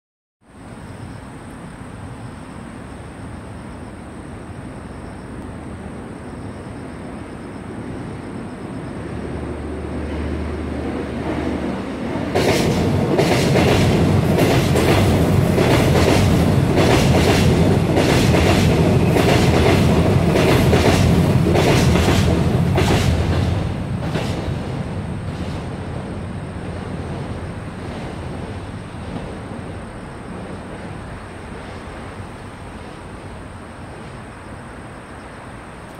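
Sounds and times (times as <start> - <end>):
electric train rumble passing: 0.4 - 35.9
train wheel clacks over rail joints: 12.3 - 24.6.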